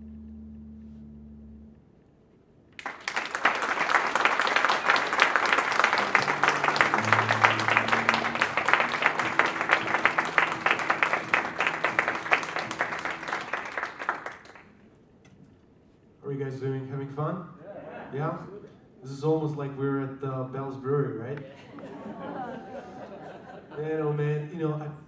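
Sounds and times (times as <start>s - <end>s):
faint low held notes: 0.0s - 2.4s
audience applause: 2.8s - 14.7s.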